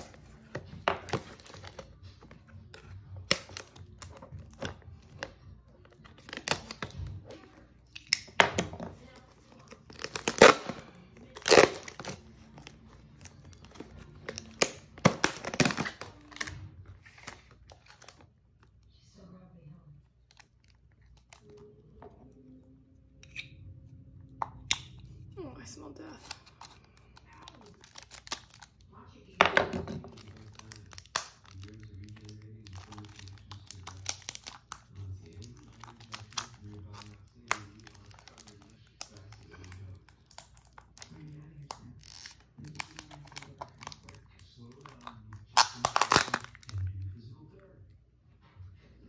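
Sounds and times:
plastic lid crackling and snapping: 0.0 - 5.3, 9.6 - 18.2, 27.5 - 28.7, 29.6 - 46.9
faint low hum: 0.0 - 49.0.

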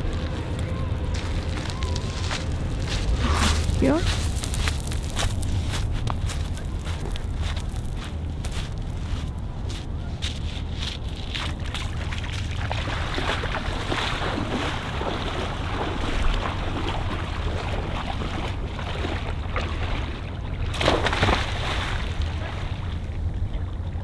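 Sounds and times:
legs splashing through water: 10.8 - 23.1.

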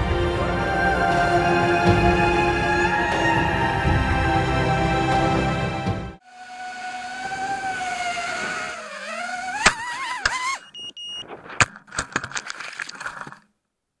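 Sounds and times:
drone motors whining: 6.2 - 11.4
short high electronic beep: 10.6 - 11.3.

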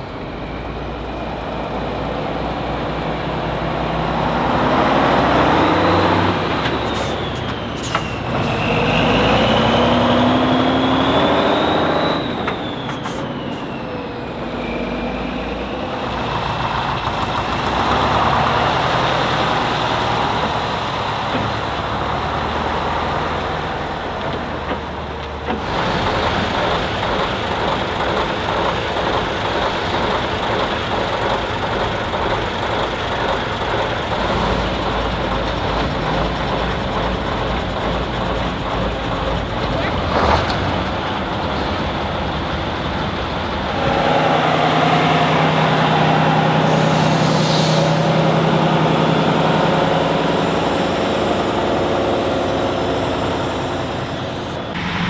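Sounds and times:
truck diesel engine revving: 0.0 - 55.0.

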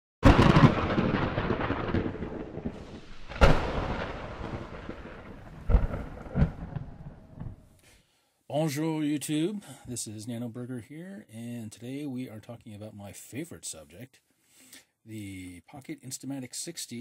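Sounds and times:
thunder cracking and rumbling: 0.2 - 7.7.

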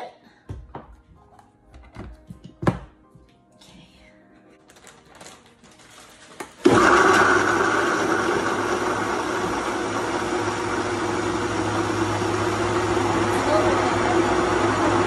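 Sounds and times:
blender motor running: 6.6 - 15.0.

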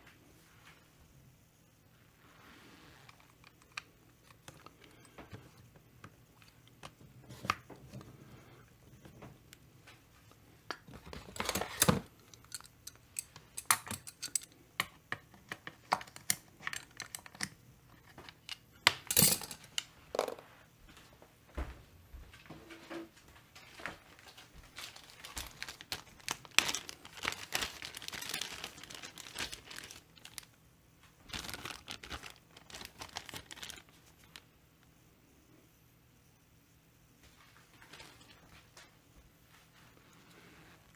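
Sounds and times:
tools clicking and tapping: 12.2 - 20.4
plastic bag crinkling: 23.6 - 30.6, 31.2 - 34.5.

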